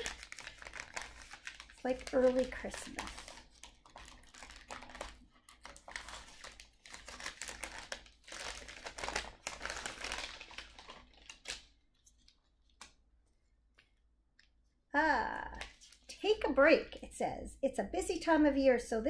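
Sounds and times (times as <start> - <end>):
wrapping paper crinkling: 0.0 - 14.0.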